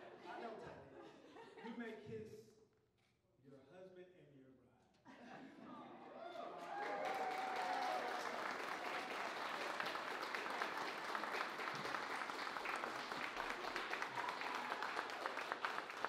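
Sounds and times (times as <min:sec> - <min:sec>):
crowd applauding: 0:06.2 - 0:16.0.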